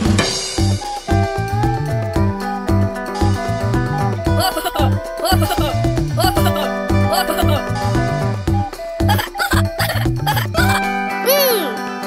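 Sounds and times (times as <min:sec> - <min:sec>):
upbeat background music: 0:00.2 - 0:12.0.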